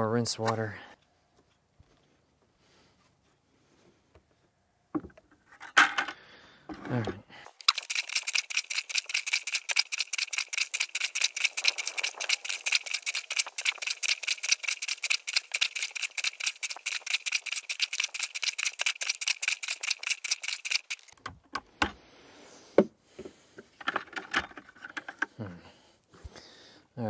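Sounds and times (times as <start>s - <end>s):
plunger pumping in water: 7.6s - 21.2s.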